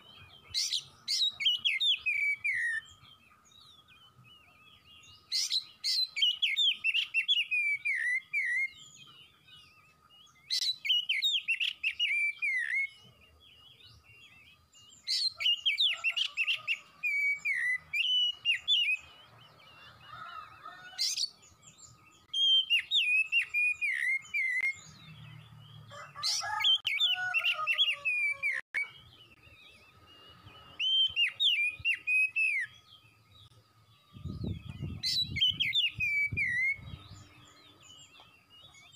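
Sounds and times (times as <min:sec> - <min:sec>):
bird singing whistled phrases: 0:00.0 - 0:03.0, 0:03.6 - 0:09.0, 0:10.3 - 0:19.1, 0:22.2 - 0:25.0, 0:26.2 - 0:33.2, 0:34.2 - 0:37.3.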